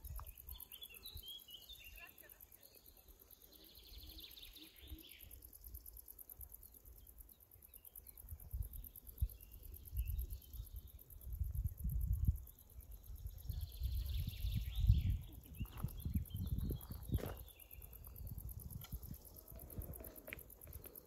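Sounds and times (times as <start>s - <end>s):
birds chirping: 0.1s - 11.3s, 12.4s - 21.0s
wind rumble buffeting microphone: 11.3s - 20.1s.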